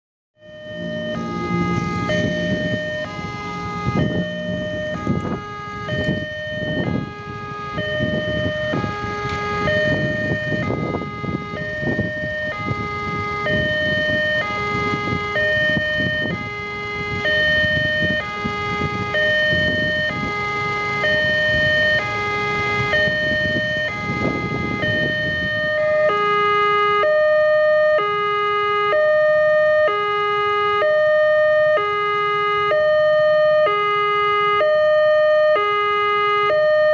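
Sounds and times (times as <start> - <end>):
level-crossing two-tone alarm: 0.4 - 36.9
motorcycle and car engines passing: 0.5 - 7.1.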